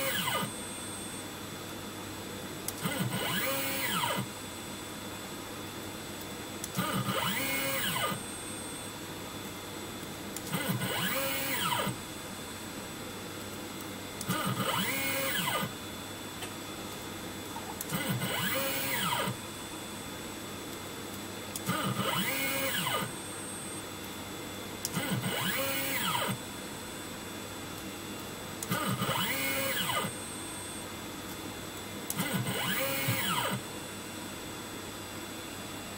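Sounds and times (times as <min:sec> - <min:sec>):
mill motor whine: 0:00.0 - 0:01.4, 0:02.7 - 0:04.4, 0:06.6 - 0:09.0, 0:10.4 - 0:12.1, 0:14.2 - 0:16.0, 0:17.4 - 0:19.6, 0:21.5 - 0:27.2, 0:28.0 - 0:31.0, 0:31.7 - 0:33.7
steady hum: 0:00.0 - 0:35.9.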